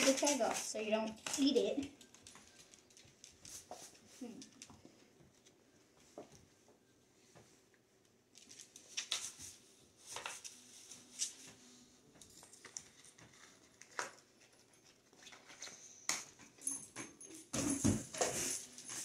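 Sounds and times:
paper tag crinkling and clicking: 0.0 - 4.7, 8.4 - 10.6, 12.4 - 16.3.

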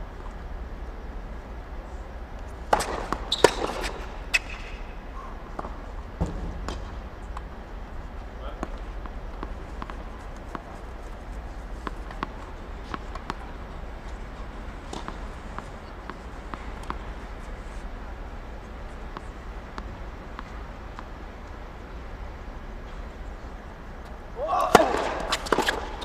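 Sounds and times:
steady low hum: 0.0 - 26.0
tennis balls bouncing: 2.4 - 26.0
shoes on court: 2.5 - 7.5, 8.1 - 21.6, 24.0 - 26.0.

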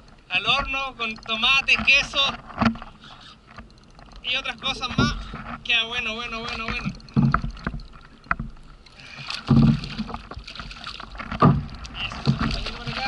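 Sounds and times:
water slapping against kayak hull: 0.0 - 13.0
fish thrashing and splashing: 1.1 - 13.0
heavy knocks on hull: 4.8 - 5.6, 6.5 - 8.6, 9.3 - 13.0.

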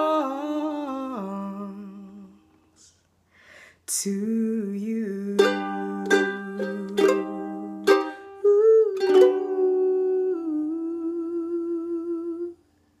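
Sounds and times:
woman humming: 4.0 - 12.6
ukulele strummed chords: 5.3 - 10.1.

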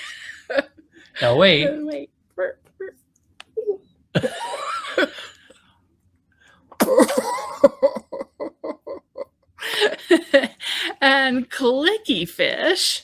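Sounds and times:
people laughing: 4.2 - 5.4, 6.8 - 10.7.

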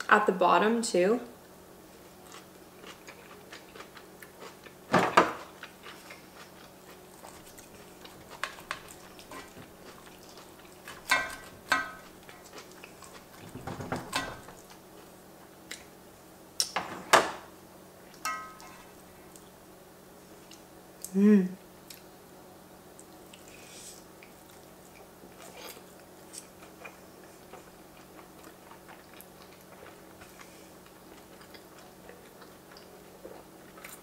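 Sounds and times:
chewing and mouth sounds: 2.0 - 15.9, 22.9 - 34.0
fork and knife scraping pan: 10.9 - 12.0, 18.3 - 18.9.

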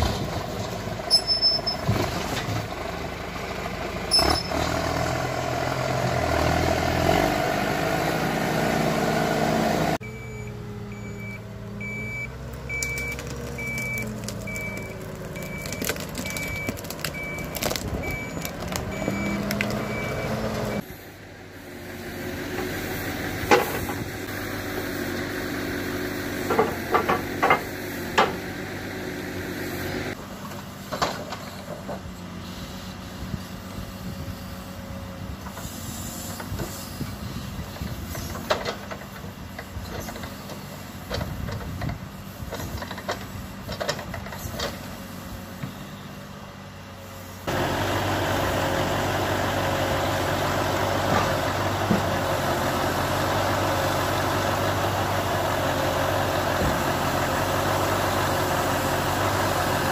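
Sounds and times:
diesel engine running: 0.0 - 59.9
timber crane working: 0.0 - 59.9
reversing alarm beeps: 10.0 - 20.8.

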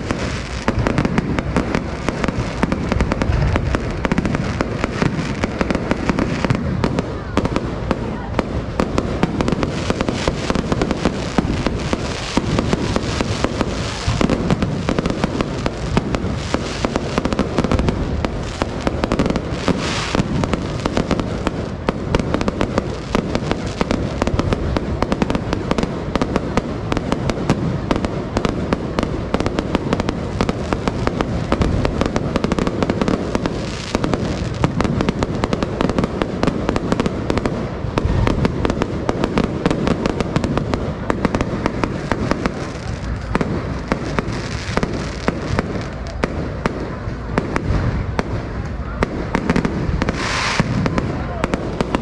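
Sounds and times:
fireworks bangs and crackles: 0.0 - 52.0.

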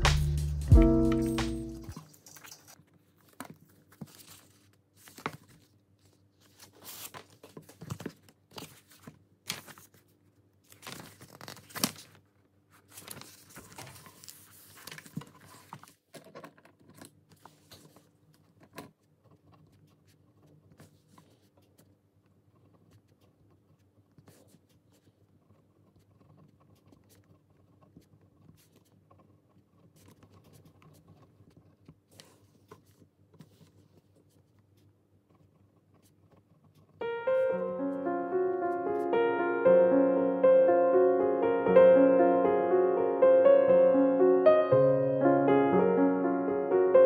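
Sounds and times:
crinkling rustles: 1.9 - 21.9.

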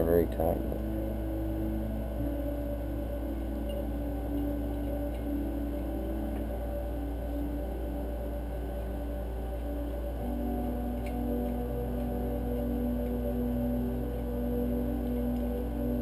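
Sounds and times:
faint wavering tones: 0.0 - 16.0
steady low hum: 0.0 - 16.0
faint ticks: 8.7 - 13.4.

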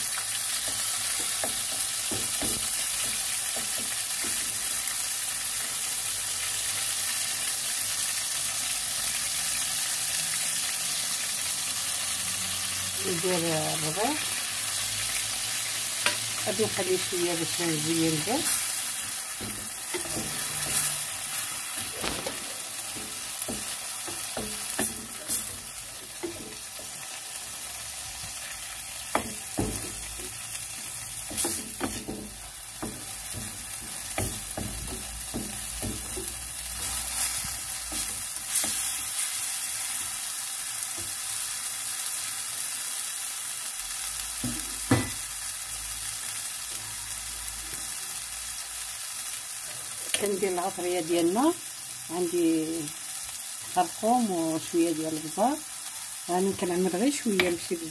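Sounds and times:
sauce sizzling in a clay pan: 0.0 - 57.9
wooden spatula knocking and scraping pan: 0.6 - 4.7, 16.0 - 27.1, 29.0 - 39.0.

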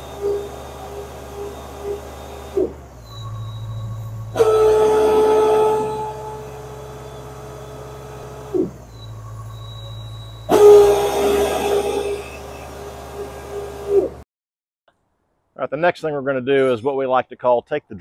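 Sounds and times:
pneumatic reamer whining: 0.0 - 14.2.

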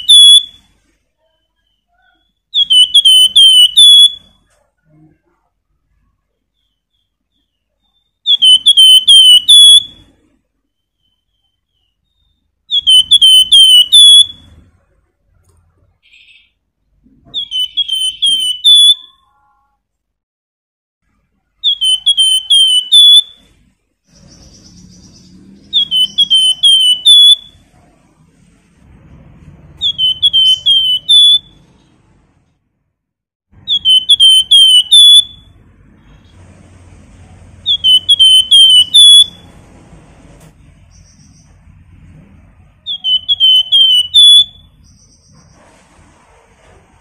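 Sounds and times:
bird whistling song: 0.0 - 4.5, 6.5 - 14.6, 16.0 - 16.6, 17.3 - 19.3, 21.6 - 27.7, 29.7 - 31.9, 33.6 - 36.4, 37.6 - 39.6, 40.8 - 41.9, 42.8 - 45.7.

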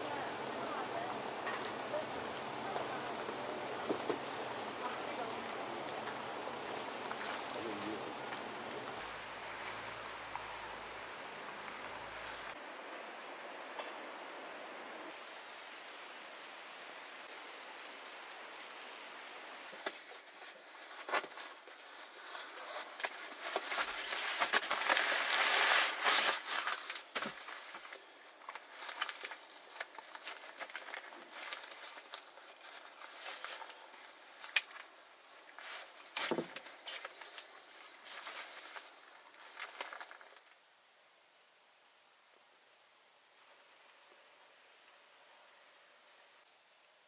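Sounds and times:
sleeping mat rustling: 19.7 - 40.1.

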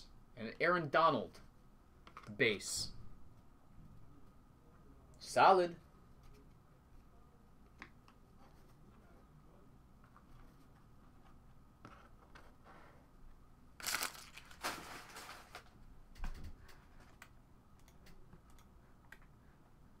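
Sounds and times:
packaging crinkling: 13.8 - 15.7.

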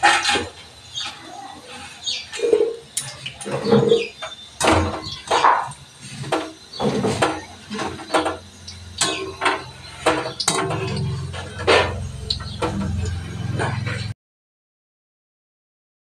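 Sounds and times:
steel utensils clinking: 7.2 - 14.1.

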